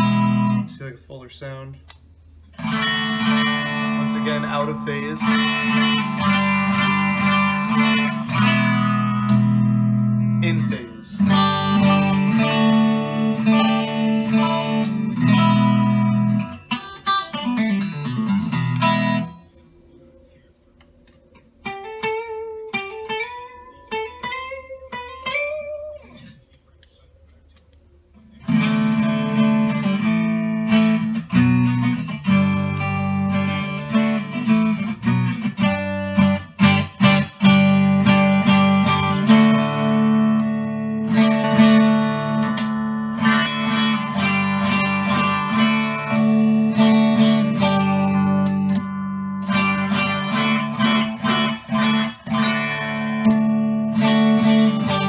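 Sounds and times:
electric guitar single-note line: 0.0s - 0.8s, 2.5s - 19.6s, 21.3s - 26.3s, 28.4s - 55.0s
electric guitar strummed chords: 0.0s - 0.8s, 2.5s - 19.6s, 21.3s - 26.4s, 28.2s - 55.0s.

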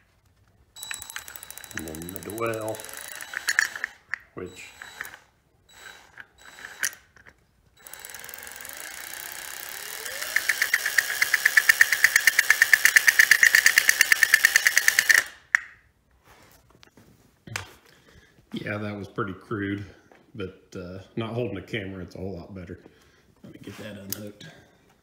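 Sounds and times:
fast sharp clicks: 0.8s - 5.2s, 7.8s - 15.8s
electric drill motor whirring: 0.8s - 15.4s.

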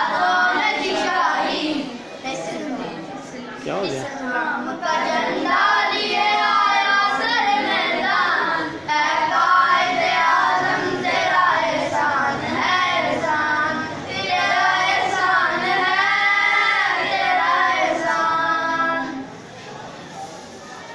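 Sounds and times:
boys singing in chorus: 0.0s - 3.0s, 3.6s - 19.4s.

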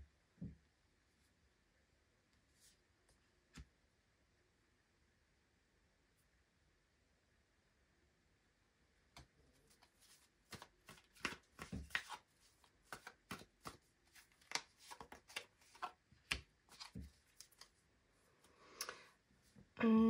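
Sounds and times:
cards being shuffled: 9.7s - 17.8s.

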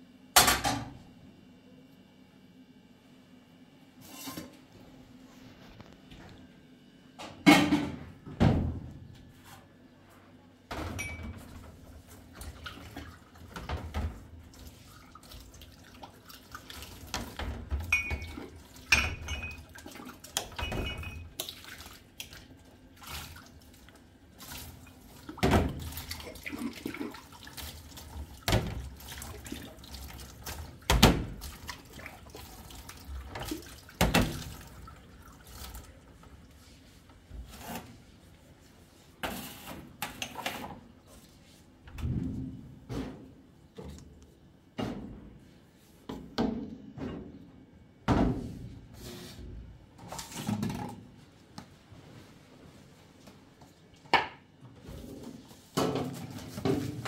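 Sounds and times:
dishes and glasses clinking: 10.9s - 11.5s, 17.9s - 19.7s, 20.6s - 21.3s
tap water running and splashing: 12.3s - 36.5s.

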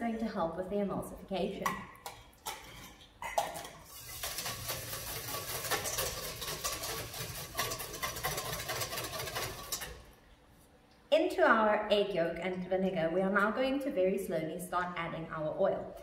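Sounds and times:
whisk scraping metal bowl: 3.9s - 10.1s.

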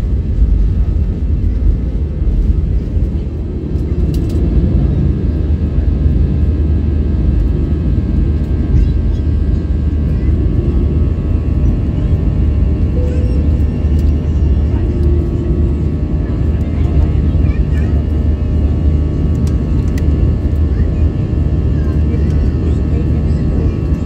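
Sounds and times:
jet engines low rumble: 0.0s - 24.0s.

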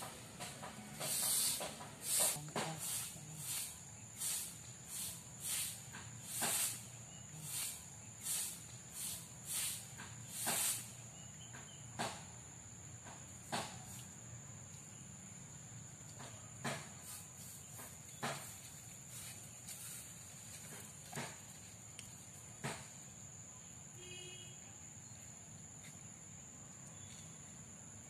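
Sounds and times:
broom sweeping dirt: 0.0s - 11.3s, 16.2s - 21.9s
high insect whine: 0.0s - 28.0s.

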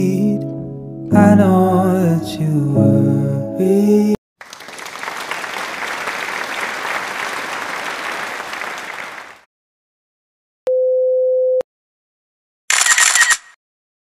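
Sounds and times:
applause: 4.4s - 9.5s.

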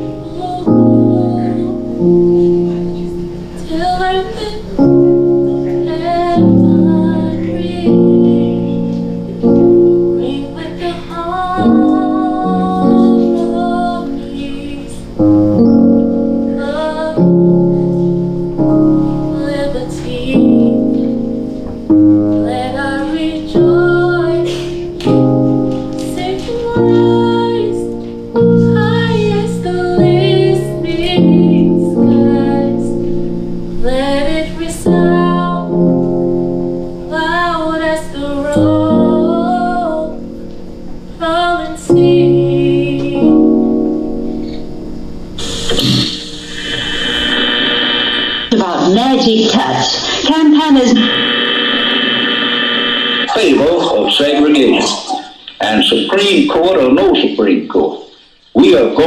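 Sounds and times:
woman singing: 0.0s - 2.4s, 3.6s - 9.0s, 10.1s - 15.2s, 16.5s - 17.8s, 19.2s - 21.1s, 22.3s - 25.2s, 25.9s - 33.1s, 33.8s - 36.0s, 37.1s - 40.3s, 41.2s - 43.8s
slow piano chords: 0.0s - 50.2s.

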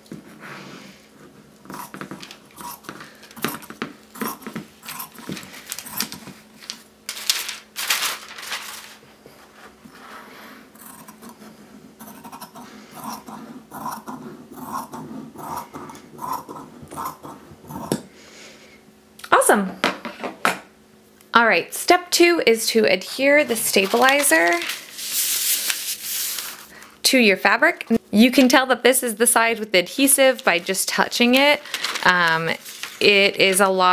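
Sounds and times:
shears snipping fabric: 1.6s - 7.2s, 10.8s - 18.0s, 23.4s - 26.7s
fabric rustling: 6.4s - 9.8s, 31.7s - 33.6s.

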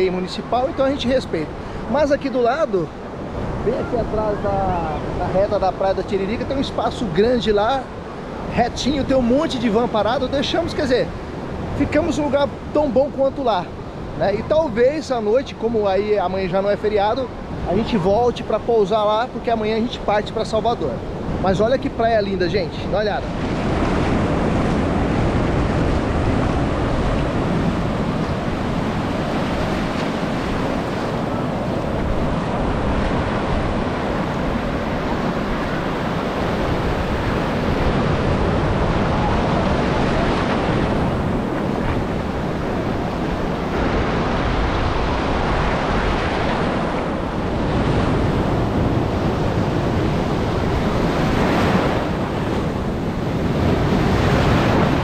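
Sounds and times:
ocean surf breaking on beach: 0.0s - 55.0s
wind buffeting microphone: 20.8s - 55.0s.

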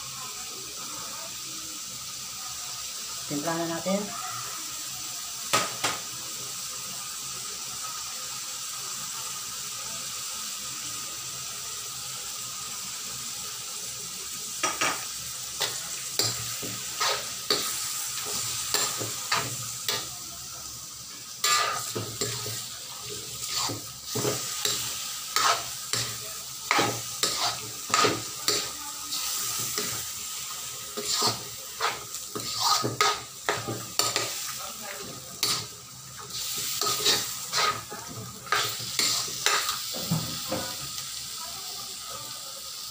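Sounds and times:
meat sizzling in a wok: 0.0s - 42.9s
metal spatula scraping a wok: 15.6s - 20.1s, 21.4s - 22.7s, 23.3s - 30.1s, 30.9s - 34.4s, 35.4s - 39.8s.

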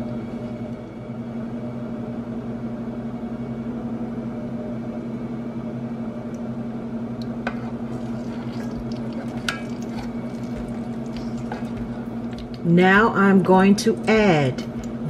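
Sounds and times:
appliance motor humming: 7.2s - 12.8s.

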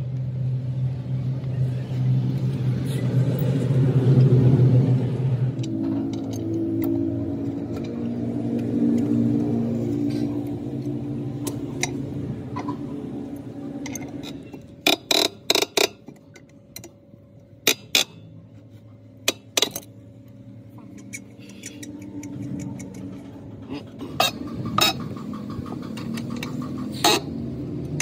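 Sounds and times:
steady hum: 0.0s - 28.0s
wrench clinking on wheel nuts: 20.9s - 23.3s.

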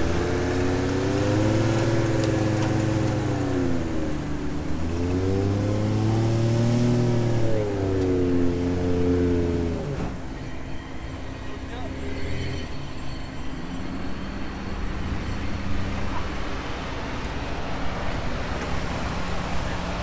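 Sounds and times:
pickup engine revving: 0.0s - 10.2s.

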